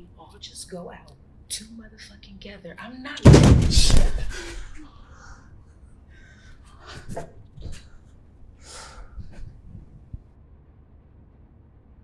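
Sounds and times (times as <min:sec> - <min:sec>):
person breathing heavily: 0:03.7 - 0:10.2.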